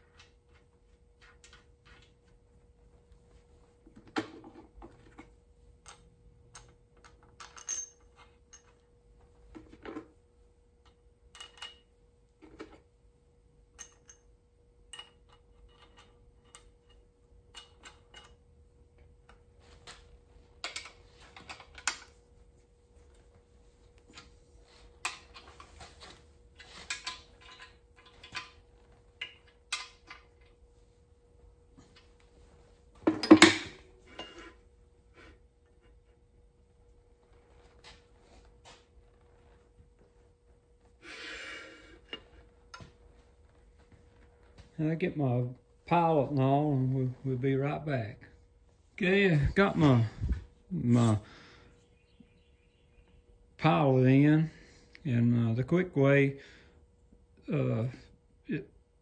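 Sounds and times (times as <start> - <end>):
metal clinks of wrench: 7.4 - 8.7, 13.8 - 14.3.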